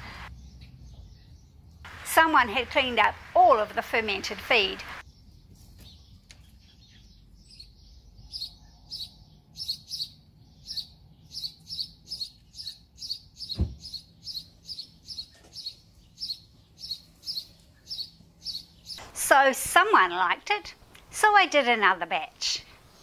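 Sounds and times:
bird chirping: 0:00.2 - 0:03.1, 0:03.9 - 0:19.1
low thump: 0:13.6 - 0:13.9.

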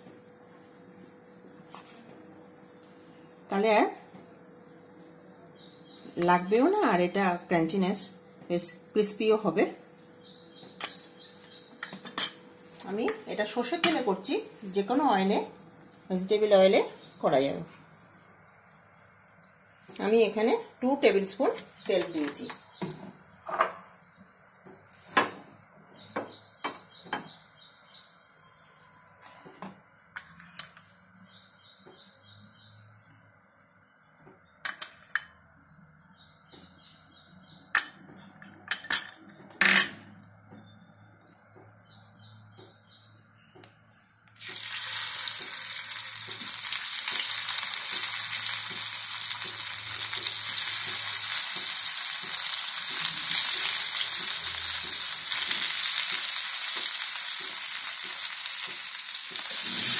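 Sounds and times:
potatoes sizzling in hot oil: 0:44.4 - 0:59.9.

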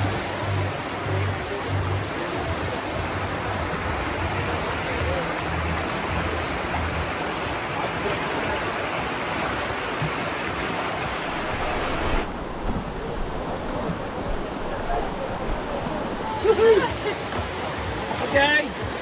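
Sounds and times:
faint bass beat music: 0:00.0 - 0:11.9
river water over rapids: 0:00.0 - 0:19.0.

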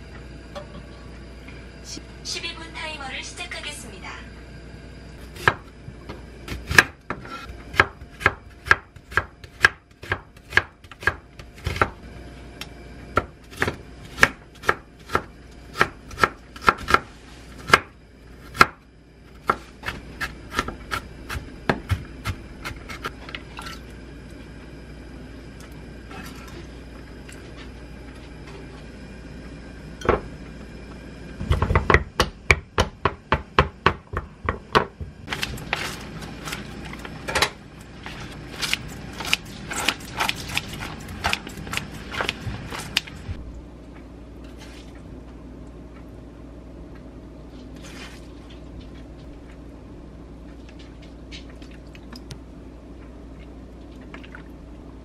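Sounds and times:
knife chopping on wooden board: 0:06.5 - 0:11.9.

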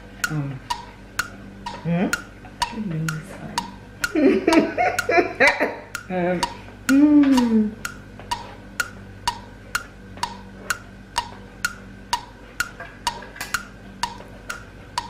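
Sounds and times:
clock ticking: 0:00.0 - 0:15.0
falling hum of voice: 0:00.3 - 0:00.7, 0:06.1 - 0:07.8.

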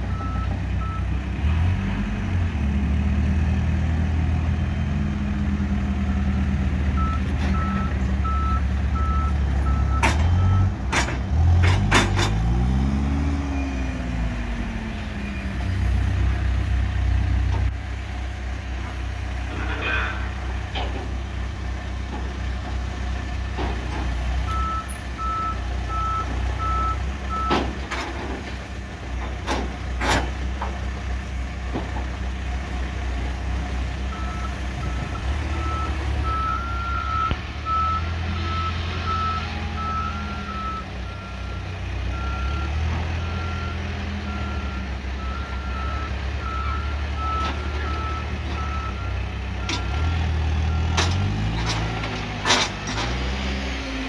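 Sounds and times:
diesel engine running: 0:00.0 - 0:54.0
reversing alarm beeping: 0:07.0 - 0:10.7, 0:24.5 - 0:27.6, 0:34.1 - 0:50.0.

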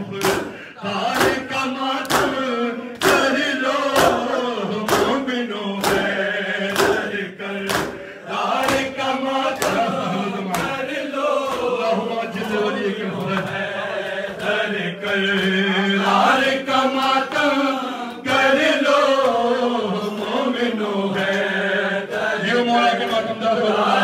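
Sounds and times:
men chanting: 0:00.0 - 0:24.0
chest beating slaps: 0:00.1 - 0:11.8.

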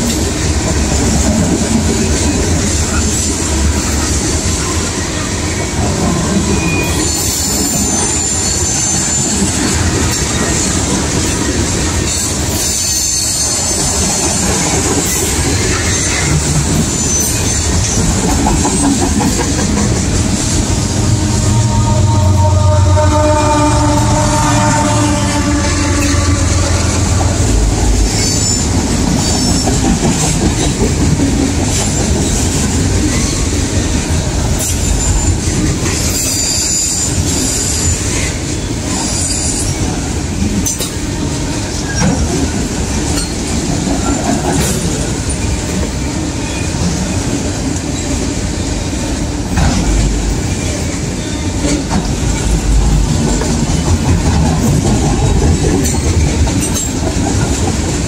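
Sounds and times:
train wheels rumbling on rail: 0:00.0 - 0:58.0
wheel squeals: 0:06.5 - 0:09.7, 0:12.1 - 0:18.1.

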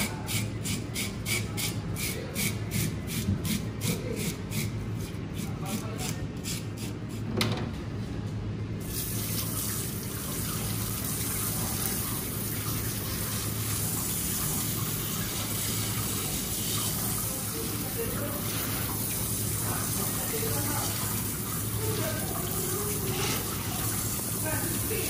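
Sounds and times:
water running into a steel sink: 0:08.8 - 0:25.0.

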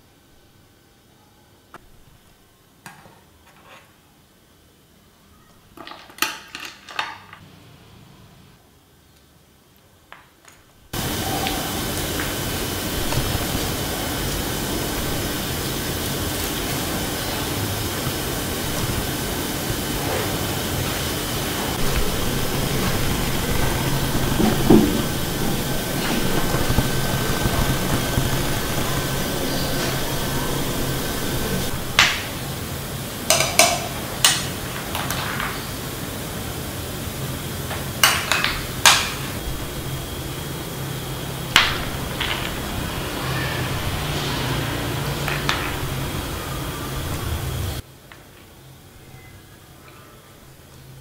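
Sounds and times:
steady background hiss: 0:04.0 - 0:51.0
dull knock: 0:22.1 - 0:28.3.

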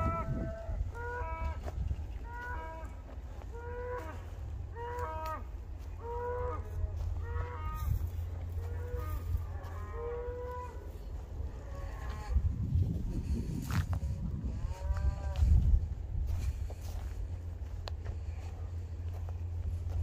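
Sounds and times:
cattle mooing: 0:00.0 - 0:12.5, 0:14.3 - 0:15.5
steady low rumble: 0:00.0 - 0:20.0.

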